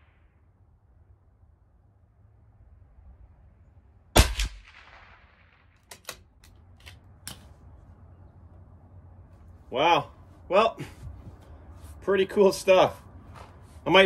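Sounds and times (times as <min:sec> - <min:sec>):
rifle shot crack: 0:04.1 - 0:06.4
rifle bolt clicks: 0:05.8 - 0:07.5.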